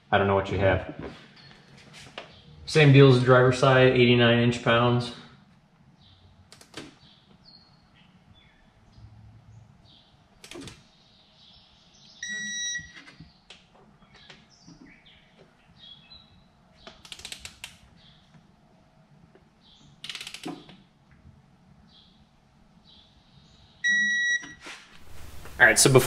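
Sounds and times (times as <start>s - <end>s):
torque wrench beep: 12.2s - 13.0s, 23.8s - 24.6s
ratchet clicks: 20.0s - 20.7s.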